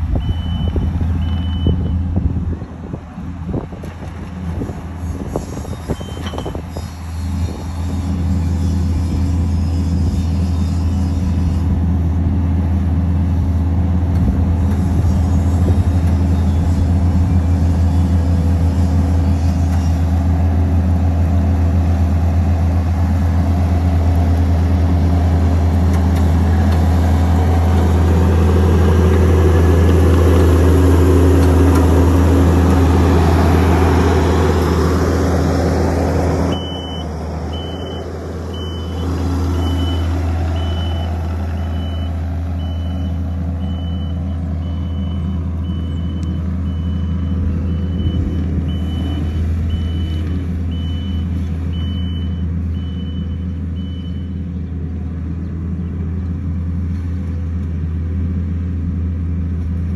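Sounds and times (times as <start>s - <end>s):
diesel engine running under load: 0.0s - 59.9s
reversing alarm beeping: 0.1s - 2.1s, 5.9s - 6.6s, 36.5s - 54.4s.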